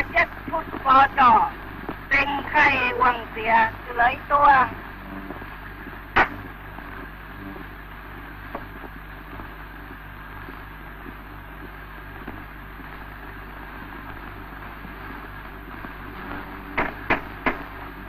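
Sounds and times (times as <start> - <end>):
film soundtrack hiss and hum: 0.0 - 18.0
sharp click: 6.2 - 6.4
faint ticks: 10.4 - 13.1.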